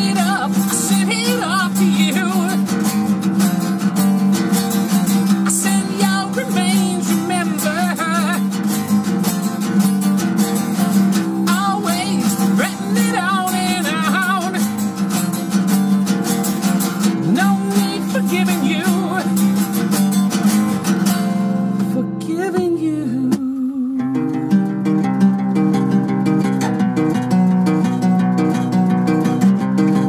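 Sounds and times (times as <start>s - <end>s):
man singing with vibrato: 0.0s - 3.1s, 5.2s - 8.9s, 11.2s - 15.5s, 17.1s - 19.8s, 21.9s - 24.4s
strummed acoustic guitar: 0.0s - 30.0s.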